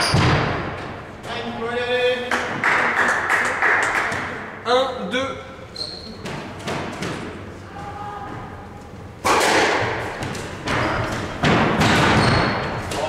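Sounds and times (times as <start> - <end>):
squash ball struck by rackets: 9.2 - 13.0.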